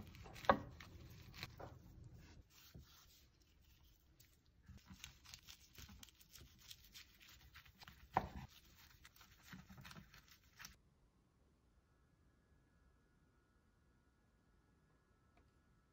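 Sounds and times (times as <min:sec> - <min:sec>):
knife crackling through seaweed wrap: 0:00.0 - 0:01.6, 0:02.2 - 0:10.8.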